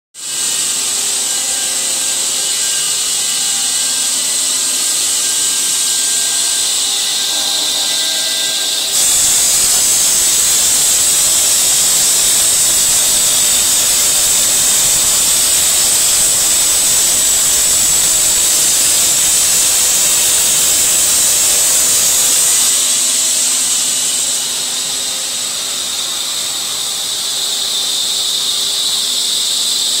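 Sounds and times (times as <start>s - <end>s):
saw blade grinding stone: 0.2s - 30.0s
water spray: 8.9s - 28.0s.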